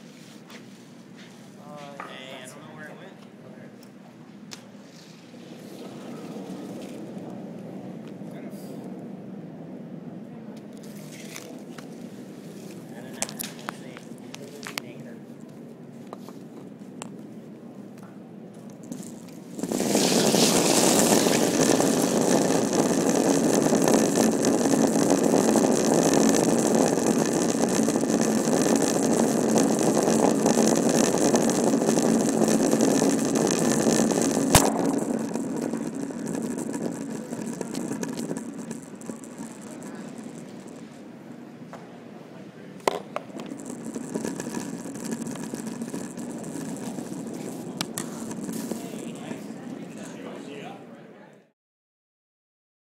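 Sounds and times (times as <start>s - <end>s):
curling stone rumbling on ice: 4.7s - 9.0s, 10.8s - 15.0s, 18.6s - 41.5s, 42.8s - 50.8s.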